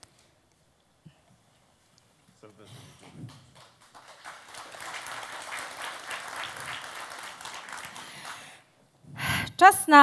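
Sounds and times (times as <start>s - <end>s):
audience applauding: 3.0s - 8.7s.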